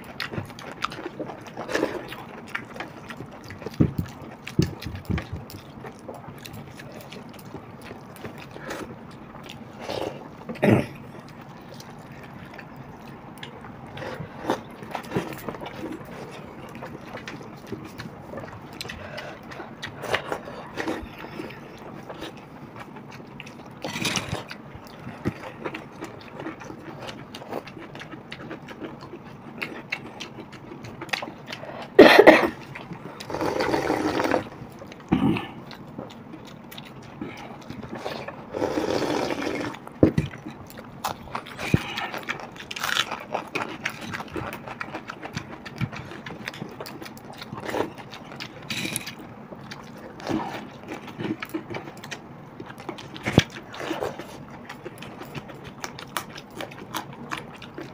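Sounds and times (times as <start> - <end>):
wet eating sounds: 0.0 - 57.9
loud slurps: 33.2 - 34.5, 38.0 - 39.8.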